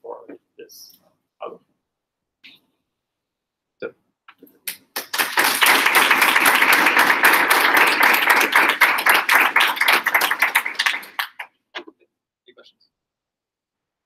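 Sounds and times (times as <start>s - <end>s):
audience applauding: 4.8s - 11.5s.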